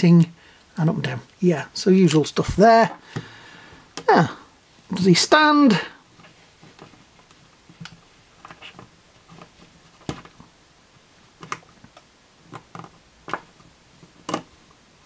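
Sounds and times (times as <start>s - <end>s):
plastic figure clicking and tapping: 14.2s - 14.5s.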